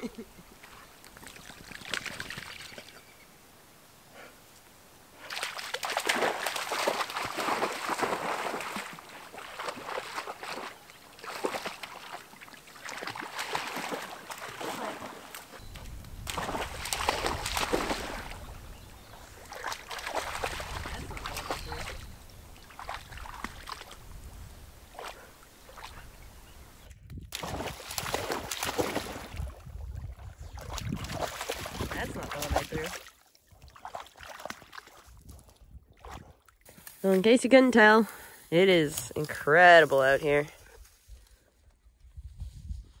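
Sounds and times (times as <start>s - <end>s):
dog splashing through water: 0.6s - 2.8s, 5.2s - 24.1s, 27.3s - 36.6s.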